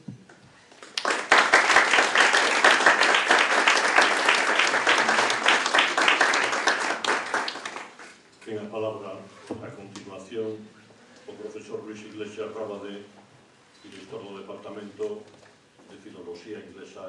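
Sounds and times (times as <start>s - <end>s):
audience applauding: 0.7s - 8.2s.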